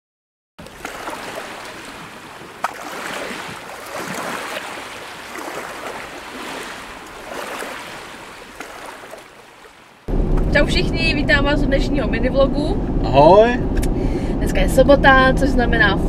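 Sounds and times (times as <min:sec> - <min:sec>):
rushing water: 0:00.6 - 0:10.1.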